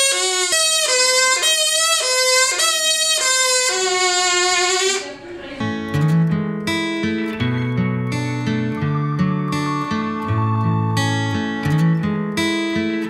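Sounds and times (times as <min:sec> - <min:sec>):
straw oboe short notes: 0:00.0 - 0:05.2
acoustic guitar music: 0:00.0 - 0:13.0.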